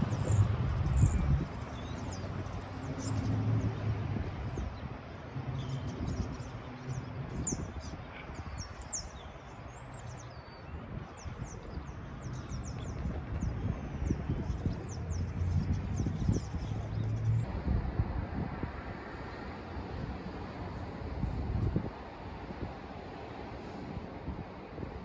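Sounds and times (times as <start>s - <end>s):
low rumble of engines: 0.0s - 25.0s
small birds chirping: 5.5s - 17.4s.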